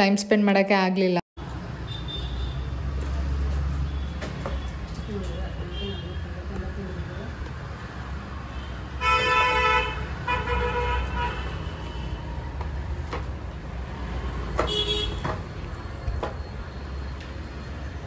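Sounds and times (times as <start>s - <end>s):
low traffic rumble: 1.4s - 18.0s
vehicle horns honking: 1.8s - 2.8s, 3.8s - 6.3s, 8.5s - 12.3s, 14.6s - 15.4s.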